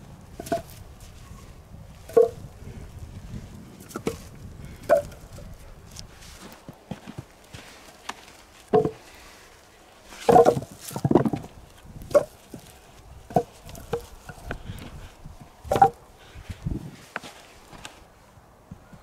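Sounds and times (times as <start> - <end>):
logs knocking wood on wood: 0.4 - 0.9, 2.0 - 2.5, 3.8 - 5.6, 6.6 - 9.2, 10.1 - 15.0, 15.6 - 16.0.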